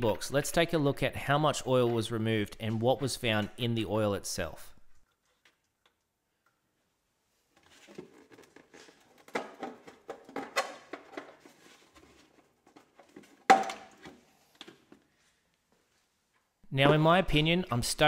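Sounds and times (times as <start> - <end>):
handling knocks and rustles: 7.5 - 17.0.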